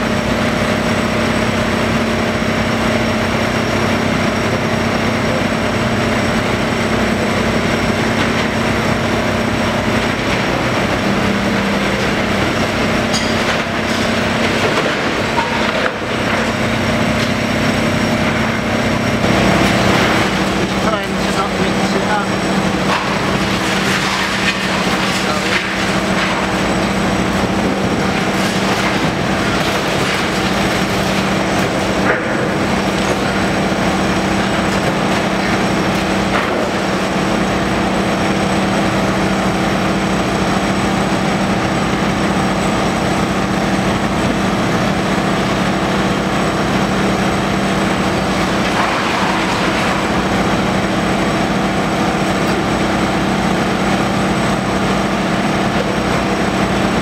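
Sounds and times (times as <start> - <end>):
excavator engine hum: 0.0 - 57.0
debris breaking and falling: 8.1 - 17.4, 19.3 - 38.3, 47.6 - 51.5.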